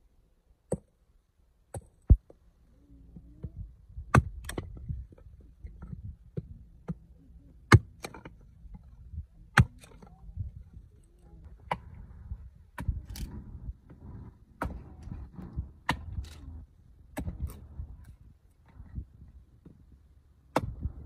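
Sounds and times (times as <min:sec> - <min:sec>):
hatchet splitting wood: 0:04.1 - 0:04.8, 0:07.7 - 0:08.4, 0:09.5 - 0:10.1, 0:11.6 - 0:12.0, 0:14.6 - 0:14.9, 0:15.8 - 0:16.4, 0:17.1 - 0:17.6, 0:20.5 - 0:20.9.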